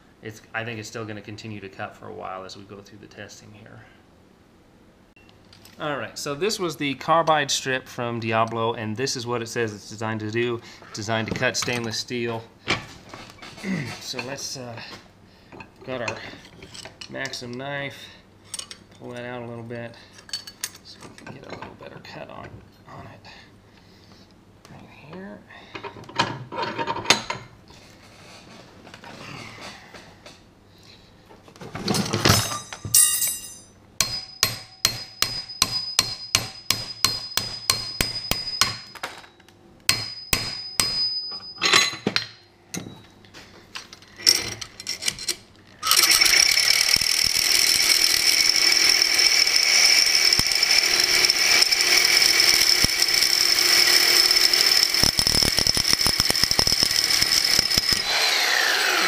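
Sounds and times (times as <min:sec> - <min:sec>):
hammer tapping steel blade: 0:33.0 - 0:39.0, 0:39.9 - 0:41.6
reciprocating saw cutting metal: 0:45.8 - 0:59.0.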